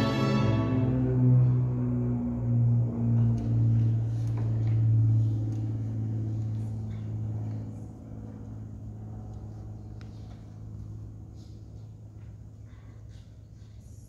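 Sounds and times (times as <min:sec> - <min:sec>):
string orchestra holding low note: 0:00.0 - 0:05.2.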